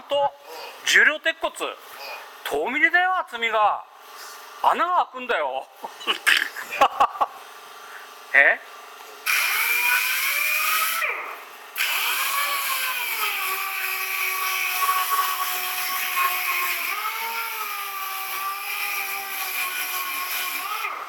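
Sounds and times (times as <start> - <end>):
power tool whining: 9.2 - 21.0.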